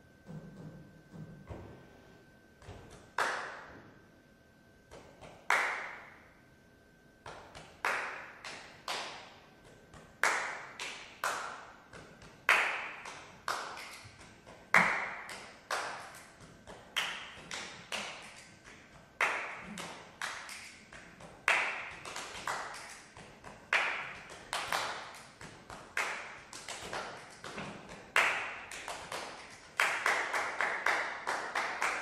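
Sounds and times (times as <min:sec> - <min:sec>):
hand claps and slaps: 0:02.6 - 0:03.8, 0:04.9 - 0:06.2, 0:07.2 - 0:32.0.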